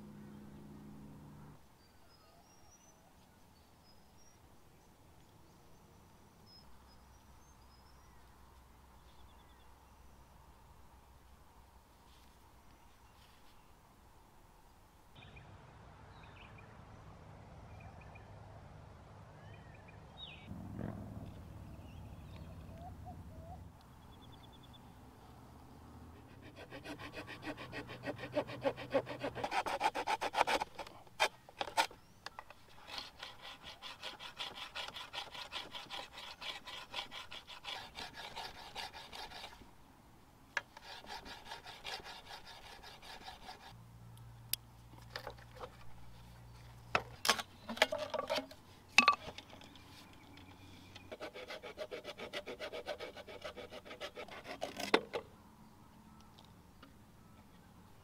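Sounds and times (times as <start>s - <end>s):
saw cutting through bamboo: 26.2s - 32.0s, 32.7s - 39.6s, 40.6s - 43.8s, 51.0s - 55.2s.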